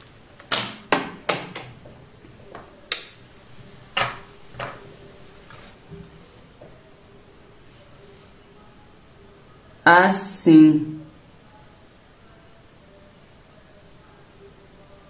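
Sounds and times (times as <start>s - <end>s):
sharp clicks and taps: 2.5s - 3.2s.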